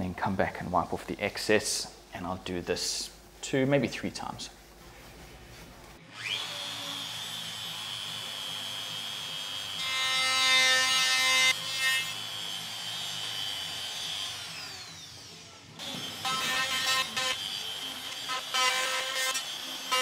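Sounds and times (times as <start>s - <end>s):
router bit cutting wood: 6.1s - 20.0s
router whining: 6.1s - 20.0s.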